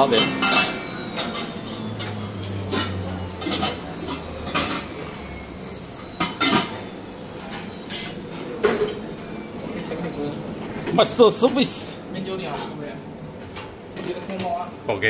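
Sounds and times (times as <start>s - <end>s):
low hum: 0.0s - 10.9s.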